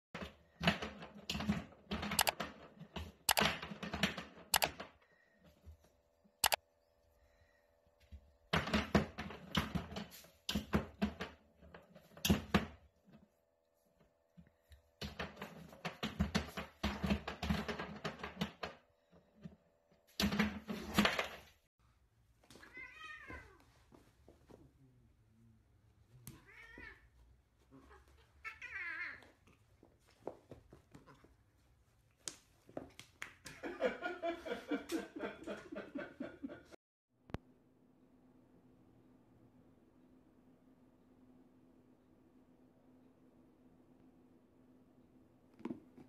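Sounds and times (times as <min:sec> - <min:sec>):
cat meowing: 0:22.6 - 0:23.6, 0:26.3 - 0:27.1.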